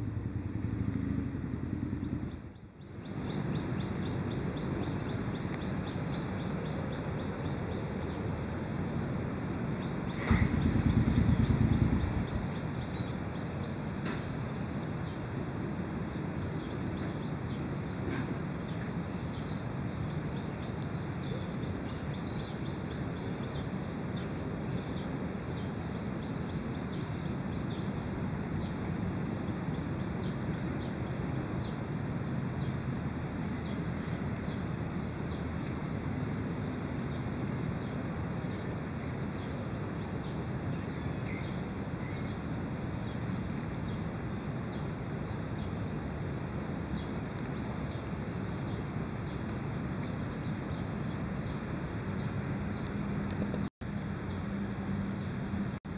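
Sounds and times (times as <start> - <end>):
low rumble: 0.0 - 2.7, 10.2 - 12.9.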